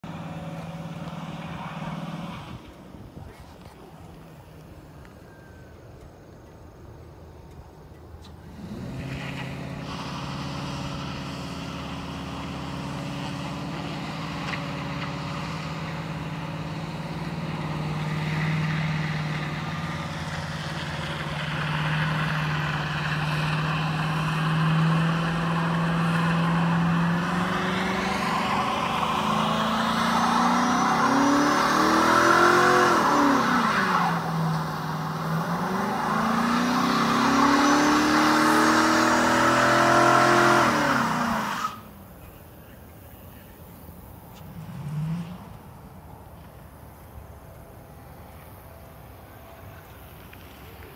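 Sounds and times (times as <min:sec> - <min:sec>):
truck engine revving: 0:00.0 - 0:02.8, 0:08.5 - 0:42.0, 0:44.4 - 0:45.9.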